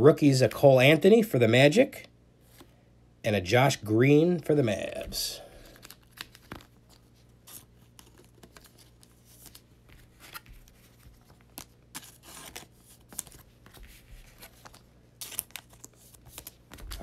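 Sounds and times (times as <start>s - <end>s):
cards sliding into plastic sleeves: 5.0s - 17.0s.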